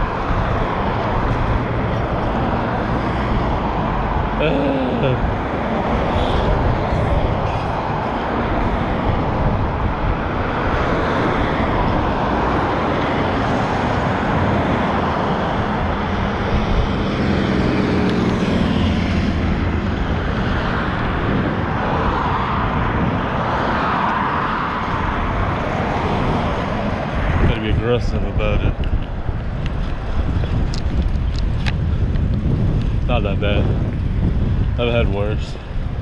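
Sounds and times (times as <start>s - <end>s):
truck engine drone: 0.0s - 10.2s
cars passing: 0.0s - 36.0s.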